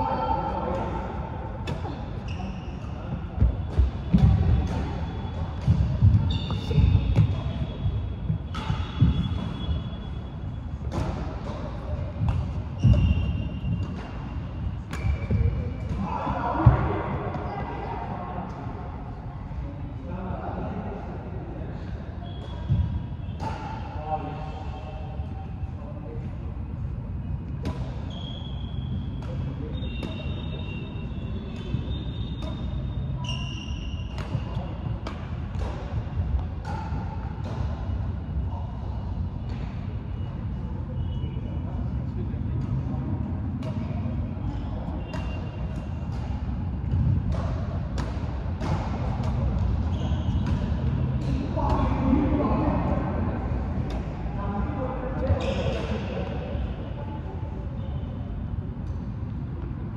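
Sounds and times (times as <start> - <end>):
shoe squeaks: 1.8 - 10.5, 12.7 - 15.8, 22.2 - 23.9, 27.8 - 35.0, 40.9 - 41.7, 44.4 - 46.4, 49.8 - 51.2, 55.3 - 56.2
rackets hitting shuttlecock: 31.5 - 38.0, 44.9 - 52.0.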